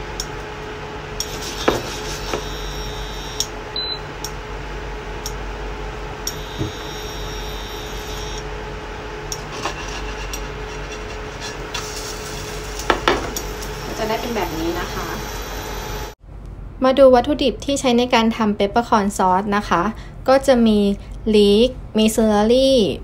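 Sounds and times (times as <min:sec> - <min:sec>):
faint steady hum: 0:00.0 - 0:23.0
potatoes sizzling in butter: 0:09.6 - 0:15.4.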